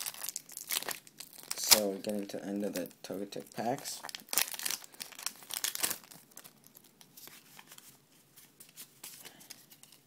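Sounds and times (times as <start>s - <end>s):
foil wrapper tearing and crinkling: 0.0s - 1.9s, 4.0s - 7.3s
cards rustling and flicking: 7.0s - 10.0s.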